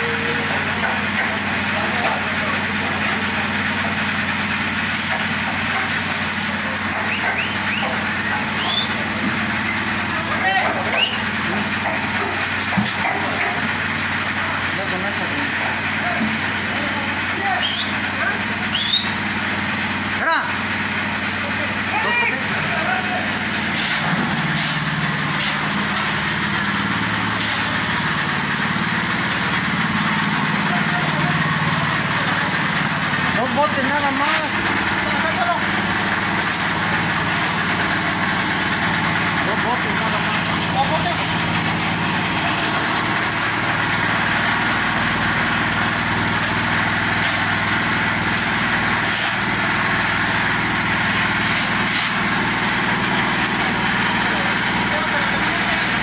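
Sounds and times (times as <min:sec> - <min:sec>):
concrete mixer engine running: 0:00.0 - 0:56.0
shovel scraping wet concrete: 0:04.8 - 0:09.4, 0:23.2 - 0:31.6, 0:33.5 - 0:56.0.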